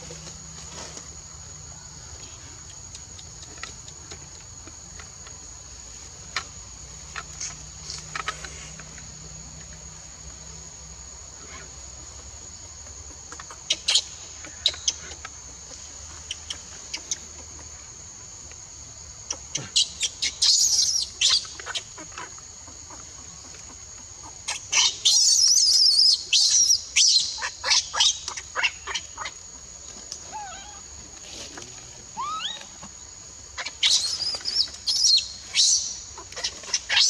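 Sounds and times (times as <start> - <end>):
insects droning: 0.0 - 37.0.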